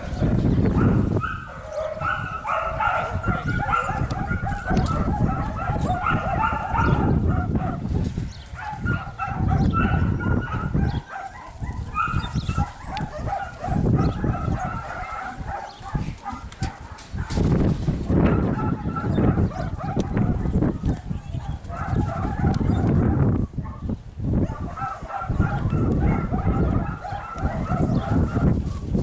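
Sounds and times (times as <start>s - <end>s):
dog yipping and barking: 0.8s - 7.8s, 8.6s - 17.4s, 18.3s - 23.8s, 24.4s - 28.9s.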